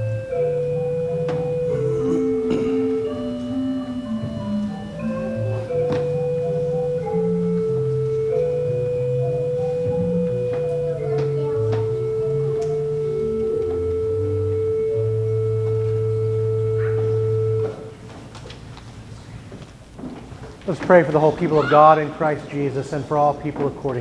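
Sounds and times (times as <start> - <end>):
pipe organ playing a hymn: 0.0 - 18.0.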